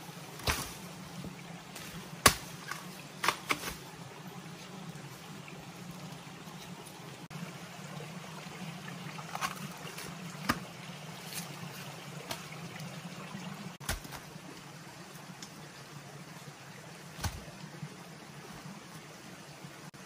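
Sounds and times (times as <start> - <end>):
stream trickling: 0.0 - 20.0
machete striking trunks: 1.8 - 3.8.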